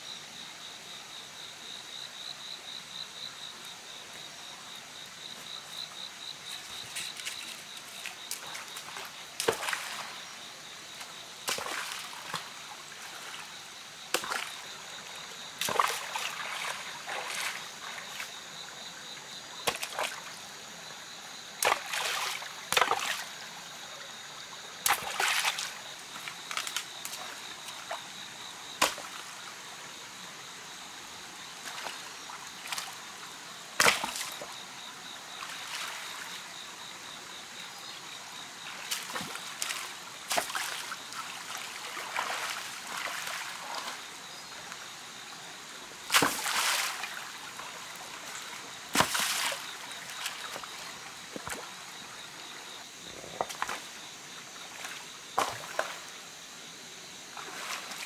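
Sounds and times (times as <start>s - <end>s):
stream trickling: 1.8s - 58.0s
stones splashing into stream: 6.4s - 10.2s, 11.4s - 13.3s, 14.1s - 14.6s, 15.6s - 18.2s, 19.6s - 20.2s, 21.6s - 23.3s, 24.8s - 28.0s, 28.8s - 29.3s, 31.6s - 33.0s, 33.8s - 34.5s, 38.8s - 44.0s, 46.0s - 51.8s, 53.2s - 53.9s, 54.8s - 56.1s, 57.4s - 58.0s.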